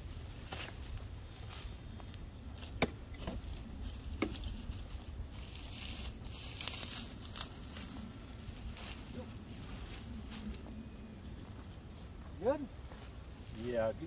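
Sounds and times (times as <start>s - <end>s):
dry straw rustling and crackling: 0.0s - 11.9s, 12.8s - 14.0s.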